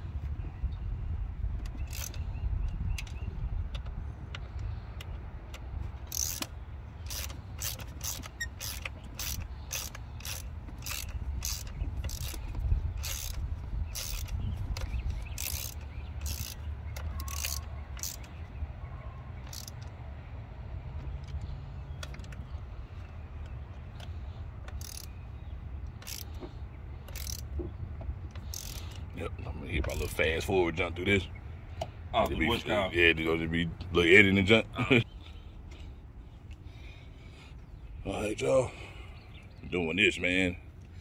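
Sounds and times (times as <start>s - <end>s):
hand ratchet clicking: 1.6s - 2.2s, 5.6s - 18.4s, 19.4s - 19.9s, 24.0s - 25.2s, 25.9s - 27.5s, 28.3s - 29.1s.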